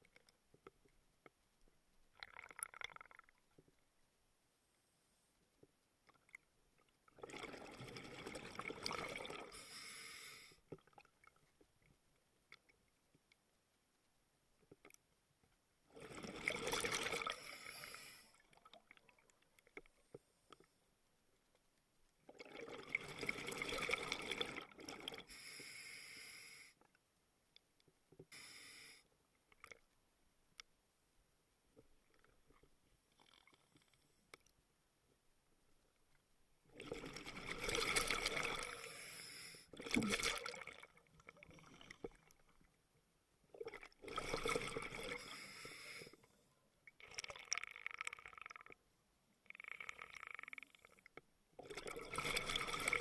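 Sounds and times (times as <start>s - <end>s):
underwater exhaled breath bubbling: 39.8s - 42.3s, 51.6s - 53.0s.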